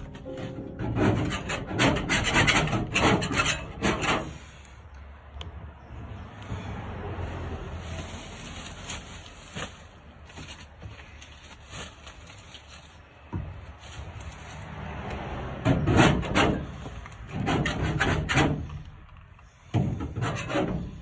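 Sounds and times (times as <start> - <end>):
scraper rasping on sheet metal: 0.8 - 4.6, 15.8 - 18.8, 19.8 - 21.0.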